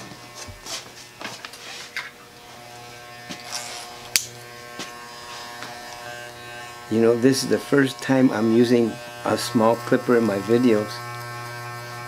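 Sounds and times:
electric hair clipper buzzing: 0.0s - 12.0s.

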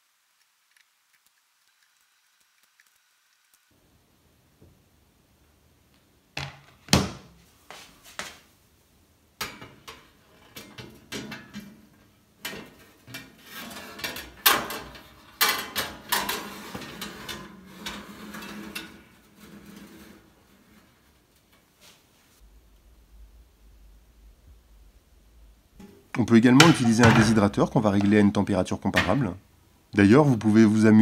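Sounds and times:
metal tray clanking: 9.4s - 21.1s, 25.8s - 29.3s
metal scraping on oven rack: 9.4s - 21.9s.

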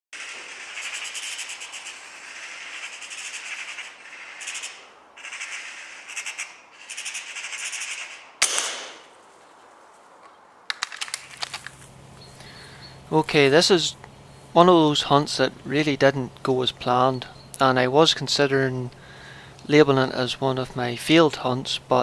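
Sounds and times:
magpie chattering: 0.2s - 8.4s
gunshot with echo: 8.4s - 9.1s
quick clicks: 10.2s - 11.9s.

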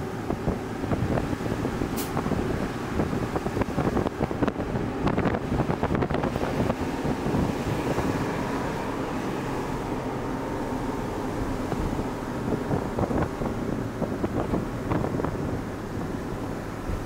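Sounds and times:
road noise: 0.0s - 17.0s
truck engine: 0.0s - 17.0s
wind buffeting microphone: 0.0s - 17.0s.

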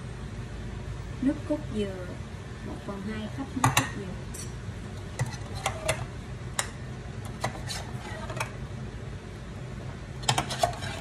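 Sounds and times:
steady low hum: 0.0s - 11.0s
spoon scraping plastic cup: 7.4s - 8.5s, 10.2s - 11.0s.

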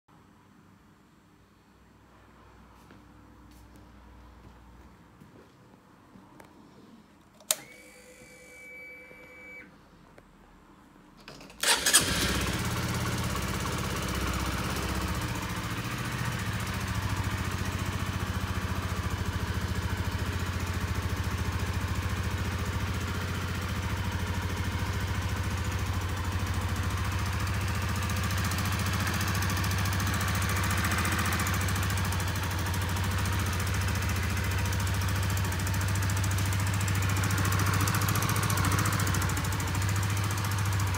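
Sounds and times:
starter motor cranking: 11.6s - 12.6s
motorcycle engine idling: 11.6s - 40.9s.

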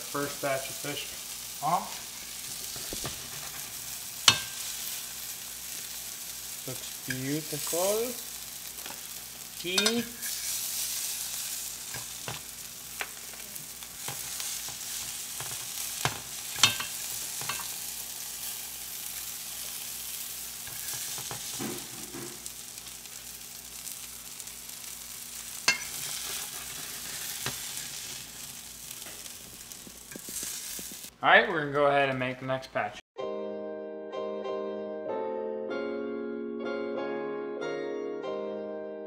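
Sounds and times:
fish sizzling in frying pan: 0.0s - 31.2s
fork clacking against pan: 9.7s - 10.3s, 15.4s - 17.7s, 25.7s - 26.8s.

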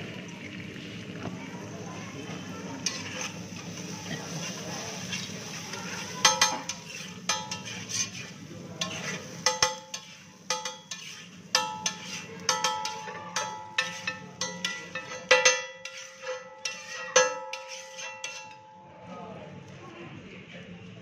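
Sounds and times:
frying hiss: 0.0s - 18.5s
spatula scraping griddle: 2.3s - 18.7s
spatula clanging on griddle: 2.7s - 19.0s.

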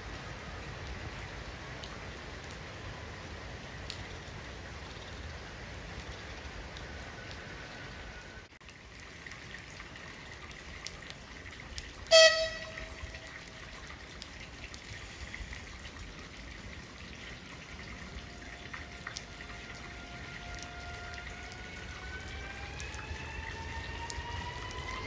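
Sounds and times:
rain hissing: 0.0s - 25.0s
train horn blast: 12.1s - 13.2s.

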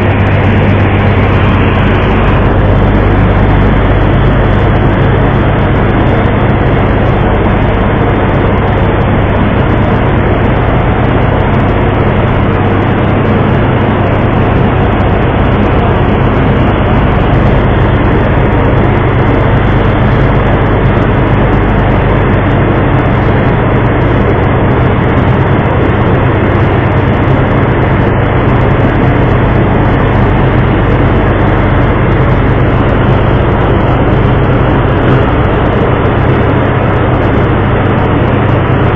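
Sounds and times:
boat engine humming: 0.0s - 38.9s
rushing noise: 0.0s - 38.9s.

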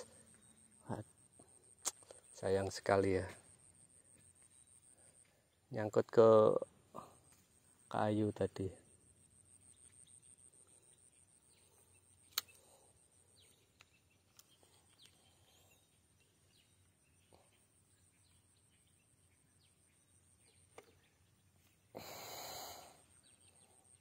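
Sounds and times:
faint bird chirps: 0.0s - 24.0s
sharp click: 12.3s - 12.6s.

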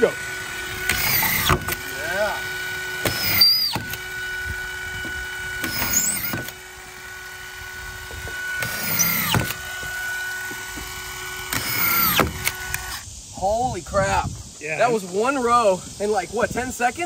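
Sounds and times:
screw gun motor whine: 0.0s - 13.1s.

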